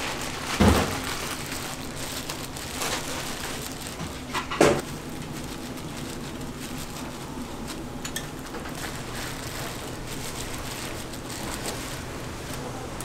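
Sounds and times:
plastic packaging handled: 0:00.0 - 0:13.0
steady low hum: 0:00.0 - 0:13.0.

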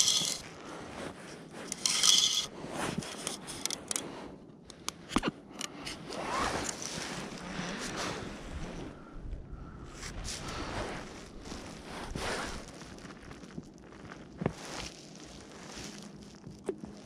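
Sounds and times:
plastic float scraping and rustling: 0:00.0 - 0:04.0, 0:05.9 - 0:09.0.

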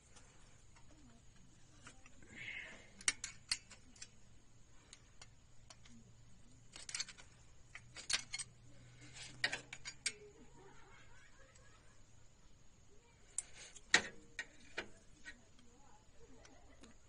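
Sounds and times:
spanner clicking on engine valve gear: 0:02.9 - 0:04.1.

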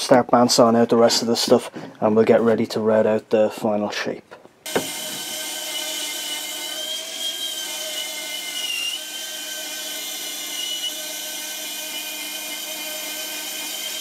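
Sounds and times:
bandsaw cutting wood: 0:04.7 - 0:14.0.

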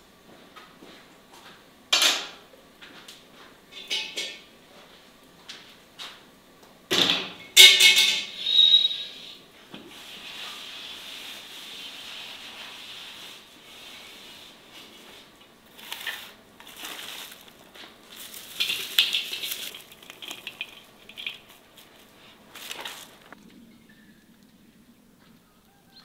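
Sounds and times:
steady hiss: 0:08.0 - 0:23.4
onion rustling and crunching in pot: 0:09.9 - 0:23.4.

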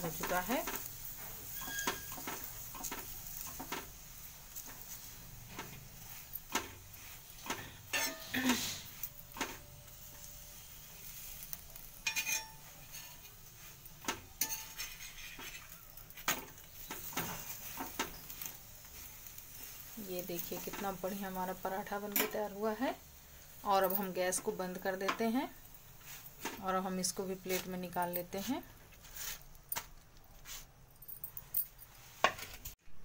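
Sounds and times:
bread sizzling in oil: 0:00.0 - 0:29.7
steel spoon scraping pan: 0:00.1 - 0:22.5.

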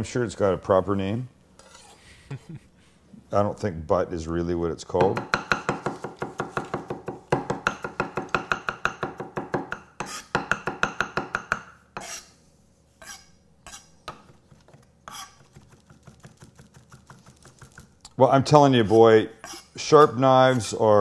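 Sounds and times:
knife chopping on wooden block: 0:05.0 - 0:12.1
knife scraping and tapping: 0:05.4 - 0:12.4, 0:13.0 - 0:17.9, 0:18.9 - 0:19.8.

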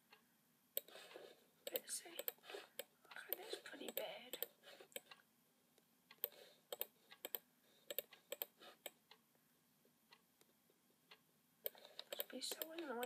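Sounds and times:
mouse and keyboard clicks: 0:00.8 - 0:05.2, 0:06.1 - 0:09.0, 0:11.6 - 0:13.0.

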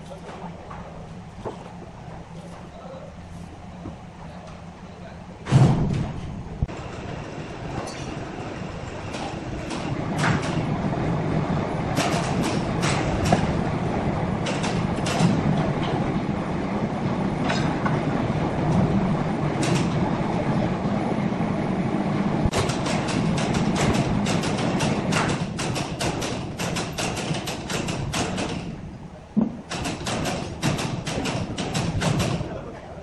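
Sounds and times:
sawmill machinery rumbling: 0:05.3 - 0:32.8
metallic clanks and knocks: 0:07.8 - 0:08.4, 0:12.0 - 0:13.6, 0:14.4 - 0:16.0, 0:22.5 - 0:28.8, 0:29.4 - 0:32.5.

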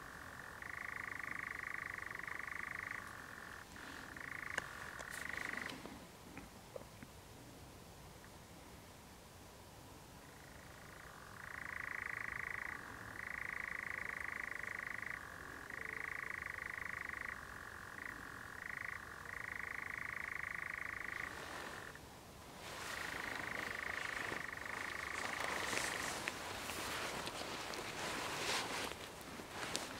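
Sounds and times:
nightjar churring: 0:00.1 - 0:05.7, 0:11.3 - 0:22.0.

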